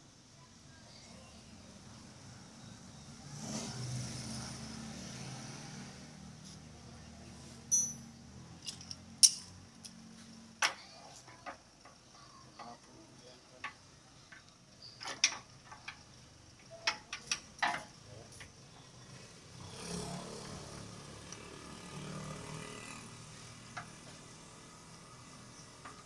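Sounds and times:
metallic clinks of tools: 0:07.7 - 0:09.6.

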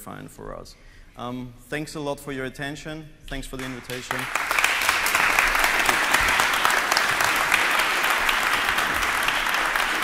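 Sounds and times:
audience applauding: 0:03.6 - 0:10.0.

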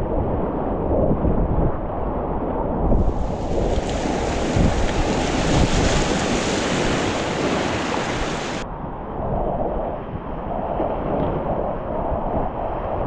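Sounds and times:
wind buffeting microphone: 0:00.0 - 0:13.0
whitewater rushing: 0:03.0 - 0:08.6.

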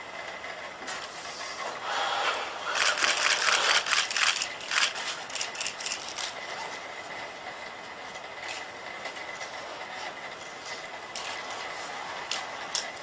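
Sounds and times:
robot joint motors clicking: 0:02.7 - 0:06.4.

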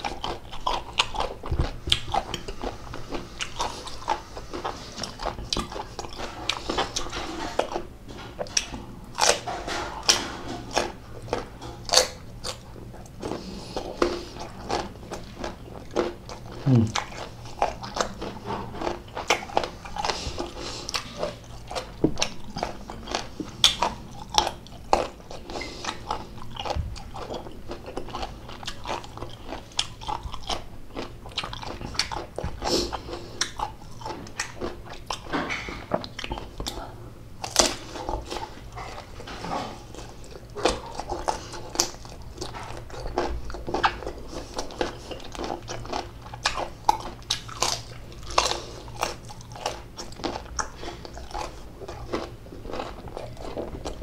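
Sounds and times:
mango being bitten and chewed: 0:00.0 - 0:36.8.

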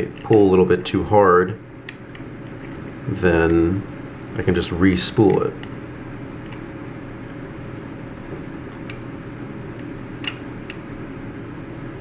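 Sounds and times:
background hum: 0:00.0 - 0:12.0.

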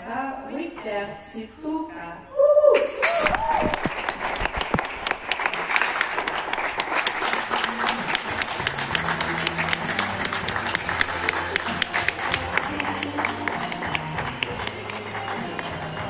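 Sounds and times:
audience clapping: 0:03.0 - 0:16.0
low steady music: 0:07.2 - 0:16.0.

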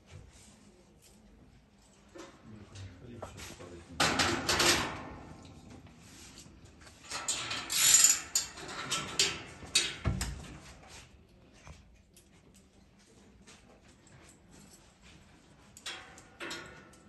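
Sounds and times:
barred metal door clanking: 0:04.0 - 0:05.5, 0:07.0 - 0:10.4.

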